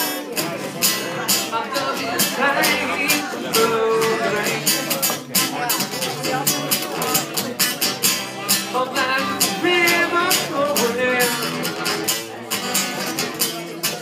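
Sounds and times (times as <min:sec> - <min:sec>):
acoustic guitar strumming: 0:00.0 - 0:14.0
person singing: 0:00.8 - 0:05.6, 0:08.5 - 0:14.0.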